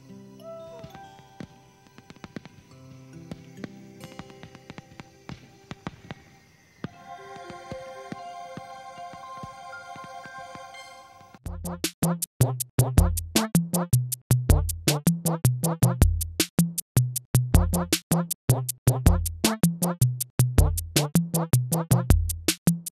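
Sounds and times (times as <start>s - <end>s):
electronic music with drum machine: 6.9s - 13.9s, 17.6s - 20.0s.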